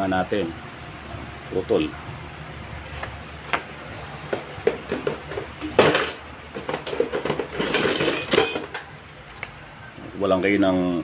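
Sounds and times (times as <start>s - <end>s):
metal strap clinking and clattering: 6.8s - 8.9s.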